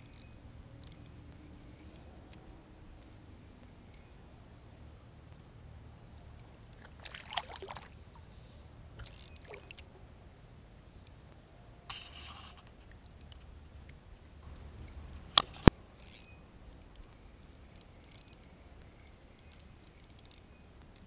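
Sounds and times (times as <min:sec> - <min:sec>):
fishing gear clicks: 0:00.0 - 0:02.4, 0:09.0 - 0:09.9, 0:14.6 - 0:21.0.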